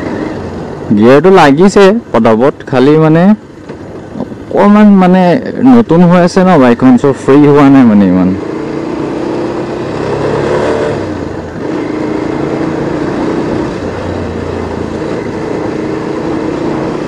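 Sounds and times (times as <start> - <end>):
motorcycle engine running: 7.1 - 17.0.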